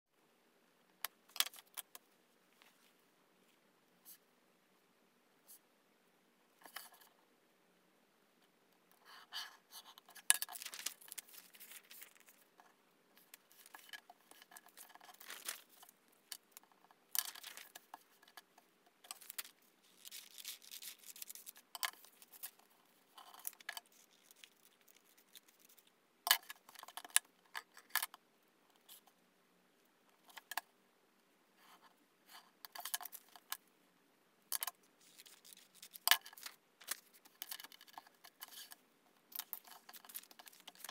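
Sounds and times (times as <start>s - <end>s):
paper rustling: 10.1s - 12.5s, 13.2s - 16.0s, 17.2s - 18.4s, 19.0s - 25.9s, 35.0s - 38.7s, 39.3s - 40.9s.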